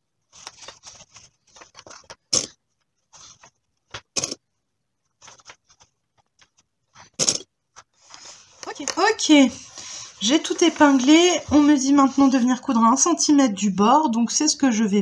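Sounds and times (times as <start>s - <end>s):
fabric rustling: 0.2s - 4.1s, 5.0s - 12.8s.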